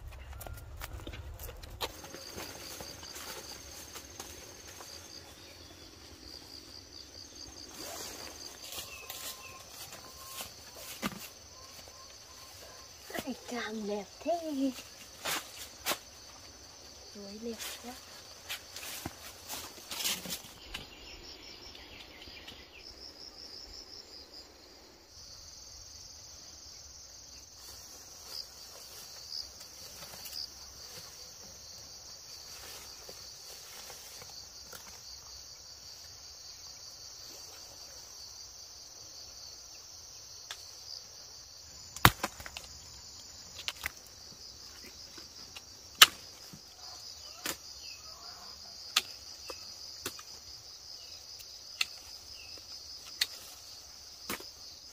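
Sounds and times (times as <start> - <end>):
insects chirring: 0.0 - 54.9.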